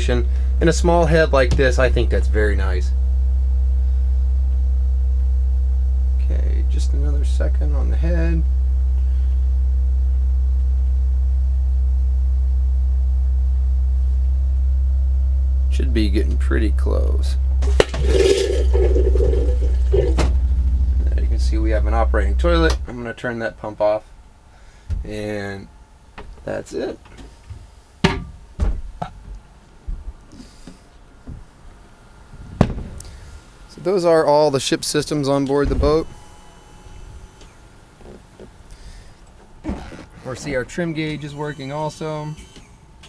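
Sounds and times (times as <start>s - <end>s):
electric water pump humming: 0.0s - 26.2s, 35.0s - 43.0s
knocks and thumps in boat cabin: 1.4s - 2.1s, 27.0s - 30.2s.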